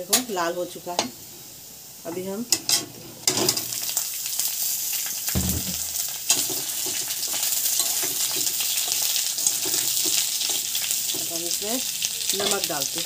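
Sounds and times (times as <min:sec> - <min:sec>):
food sizzling in hot oil: 0:00.0 - 0:13.0
dull knock: 0:05.4 - 0:06.0.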